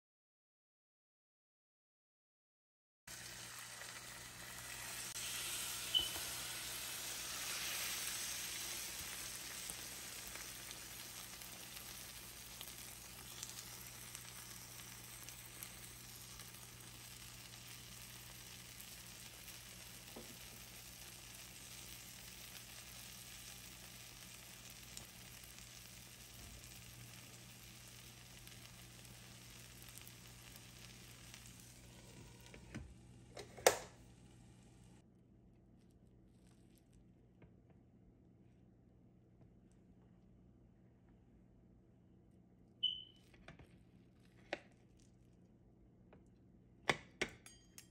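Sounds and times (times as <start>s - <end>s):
omelette sizzling in oil: 3.1s - 32.7s.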